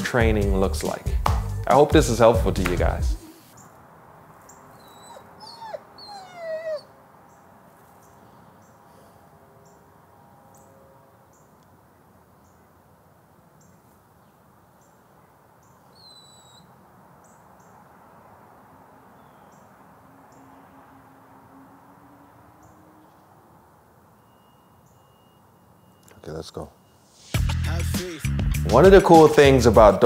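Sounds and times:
whistled bird call: 16.0 - 16.7, 24.2 - 27.1.

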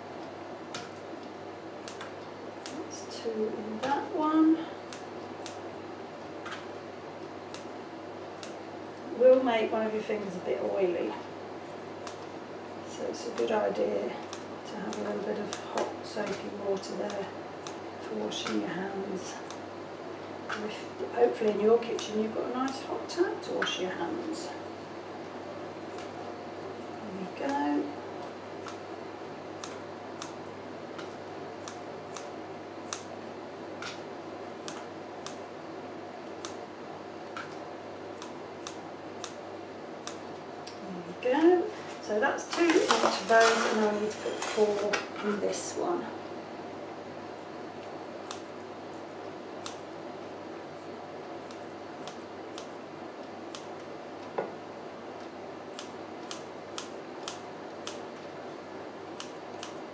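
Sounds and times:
low steady hum: 0.0 - 59.9
scissors snipping: 1.8 - 2.8, 31.0 - 32.3, 32.9 - 33.1, 34.6 - 35.4, 38.2 - 39.4, 49.6 - 49.8, 51.4 - 52.8, 55.7 - 58.0, 59.2 - 59.8.

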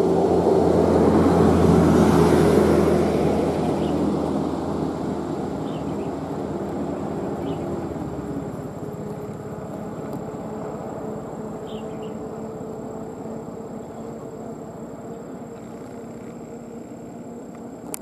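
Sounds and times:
engine hum: 0.0 - 18.0
high bird chirps: 11.6 - 12.2.

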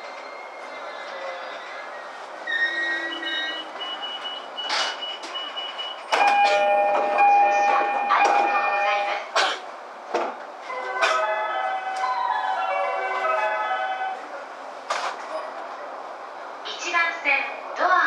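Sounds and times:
train brakes squealing: 0.0 - 6.7.

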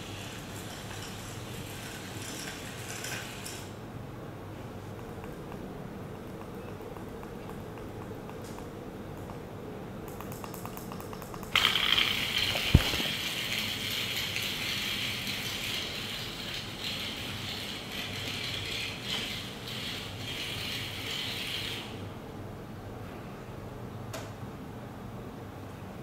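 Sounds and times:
toy motors gear rattle and whine: 0.0 - 3.7, 11.5 - 21.9.

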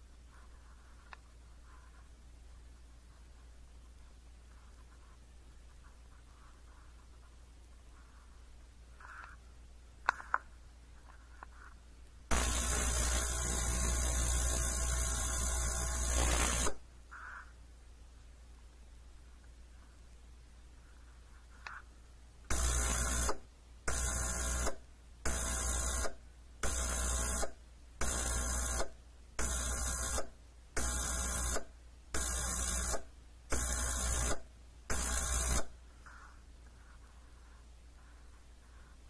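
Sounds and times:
ultrasonic cleaner pulsing hum: 12.3 - 17.2.

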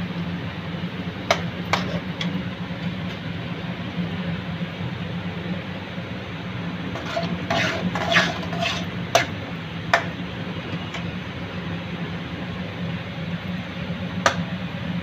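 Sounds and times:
steady low hum: 0.0 - 15.0
metal spatula scraping pan: 1.3 - 2.3, 6.9 - 9.4, 10.0 - 11.1.

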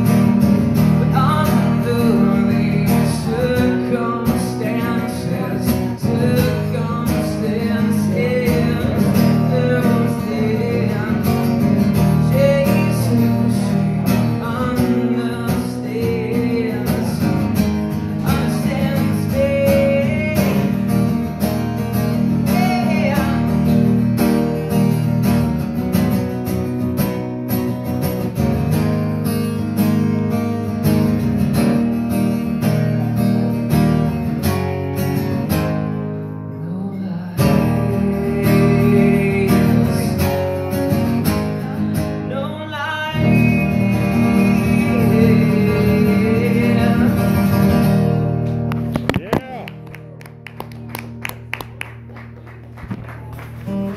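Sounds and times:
strummed acoustic guitar: 0.0 - 53.9
man singing: 0.8 - 23.9, 36.5 - 48.1.

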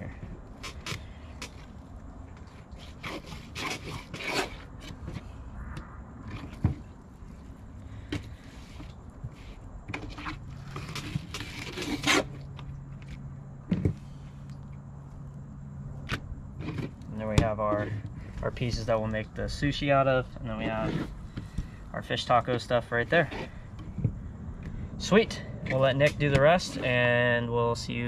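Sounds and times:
low steady hum: 0.0 - 28.0
knife cutting and scraping fish: 0.5 - 5.4, 7.3 - 13.2, 22.4 - 23.6.

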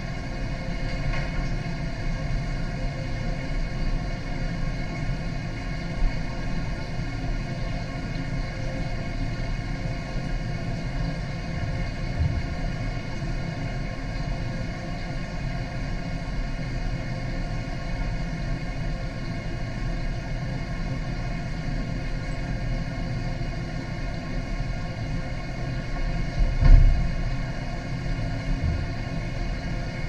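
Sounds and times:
water circulation rumble and hum: 0.0 - 30.0
low thump: 26.6 - 27.1.

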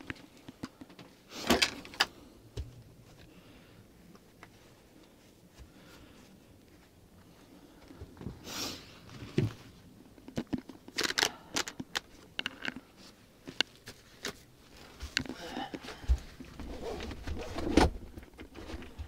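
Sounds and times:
camping gear rustling and clicking: 6.6 - 19.0.

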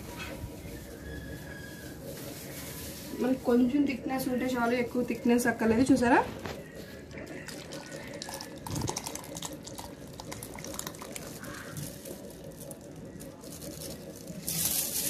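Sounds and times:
soup pouring and splashing: 6.7 - 15.0.

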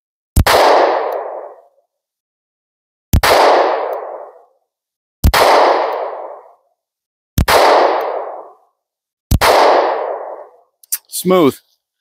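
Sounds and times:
pistol shots with echo: 0.4 - 1.7, 3.2 - 4.5, 5.2 - 6.6, 7.4 - 8.6, 9.3 - 10.6.

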